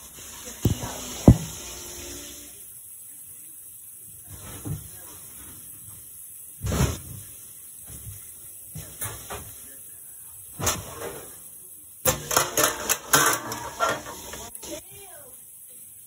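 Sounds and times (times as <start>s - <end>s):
pans knocking and clattering: 0.7s - 1.7s, 12.0s - 14.5s.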